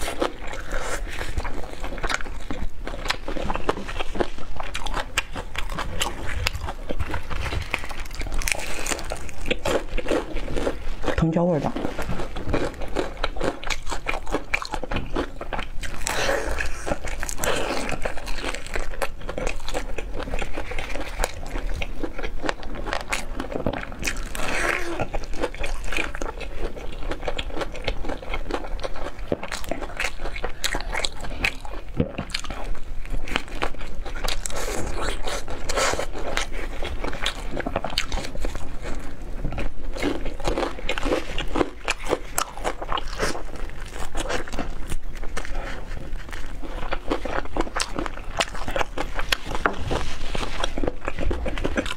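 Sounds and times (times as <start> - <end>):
crunchy chewing of fried chicken: 0.0 - 51.9.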